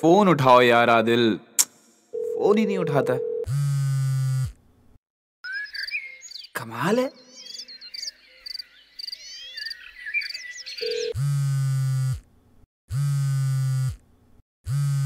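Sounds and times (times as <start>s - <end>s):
birds chirping: 5.4s - 11.2s
mobile phone buzzing: 10.8s - 12.2s, 14.7s - 15.0s.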